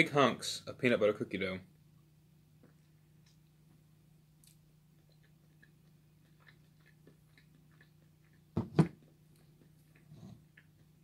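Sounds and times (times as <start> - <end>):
low room hum: 0.0 - 11.0
person chewing: 4.4 - 11.0.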